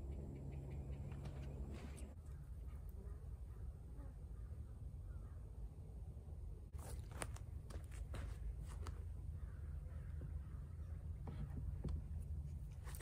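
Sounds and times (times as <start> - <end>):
footsteps on dry grass: 6.7 - 9.1.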